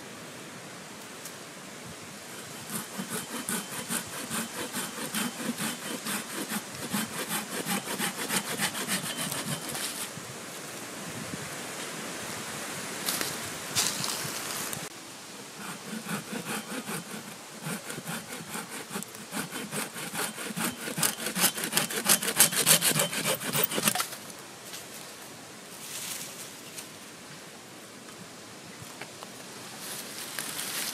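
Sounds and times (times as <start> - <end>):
saw cutting wooden branch: 2.3 - 10.1, 15.6 - 24.1.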